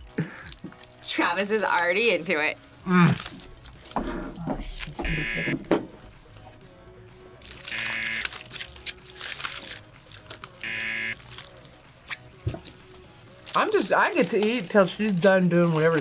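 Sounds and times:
quiet background music: 0.0 - 16.0
game-show buzzer: 5.0 - 5.7, 7.7 - 8.4, 10.6 - 11.2.

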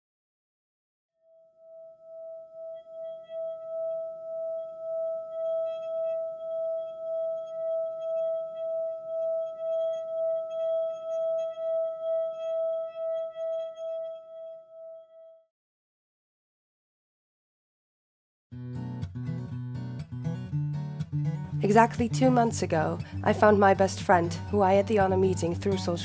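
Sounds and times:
singing bowl tone: 1.2 - 15.5.

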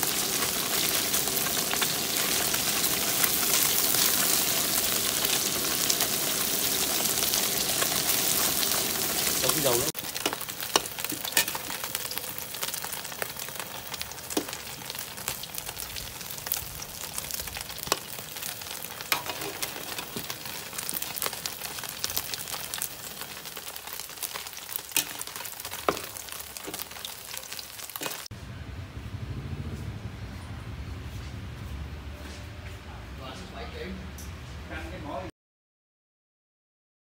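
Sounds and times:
fish sizzling in hot oil: 0.0 - 28.3
metal spatula stirring in wok: 10.0 - 12.0, 17.8 - 22.0, 24.3 - 27.4.

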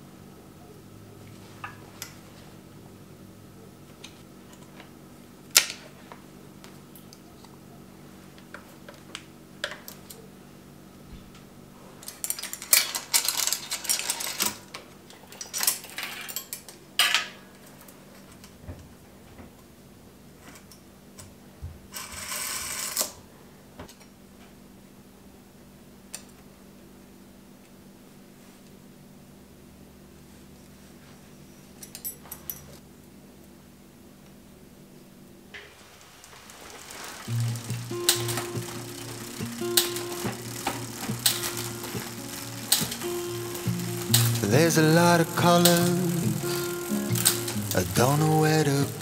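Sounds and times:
bicycle chain clinking and rattling: 12.0 - 18.4, 35.8 - 49.0
chain running steadily: 36.3 - 49.0
metal clicks: 37.0 - 49.0.

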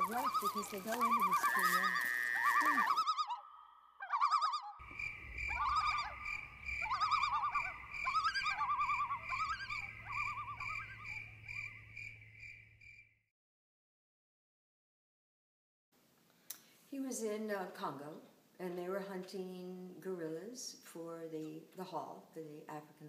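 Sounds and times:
warbling animal calls: 0.0 - 12.1
evenly pulsing chirp: 0.0 - 13.0.

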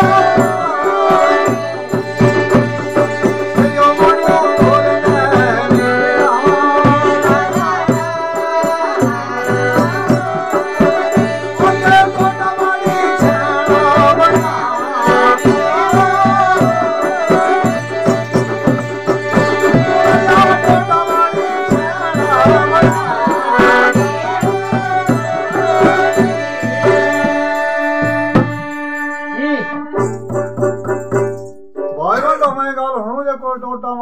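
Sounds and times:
harmonium drone and tune: 0.0 - 31.5
hand cymbals jingling: 0.0 - 32.4
barrel drum beat: 0.0 - 32.6
plucked lute: 29.8 - 32.6.

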